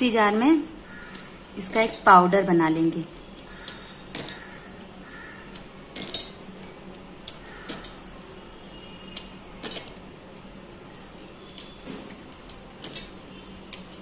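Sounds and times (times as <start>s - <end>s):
biscuits clicking and tapping: 3.3s - 10.6s, 11.2s - 14.0s.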